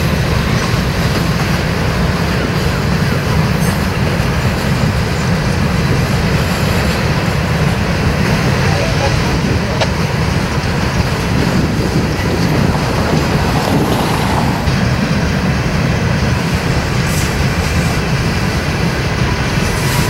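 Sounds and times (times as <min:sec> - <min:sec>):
freight train rumbling on rails: 0:00.0 - 0:20.0.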